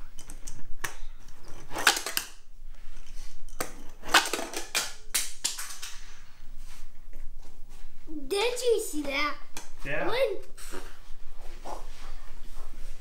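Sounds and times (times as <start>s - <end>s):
toy truck plastic clicks and clatter: 1.6s - 2.4s, 3.5s - 6.0s.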